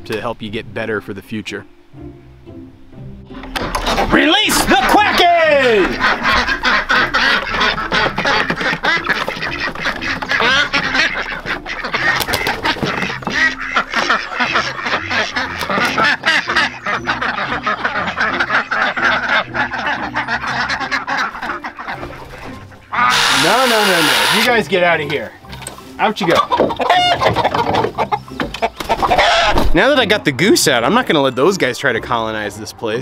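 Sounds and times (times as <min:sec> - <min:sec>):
ducks quacking: 0:03.6 - 0:29.8.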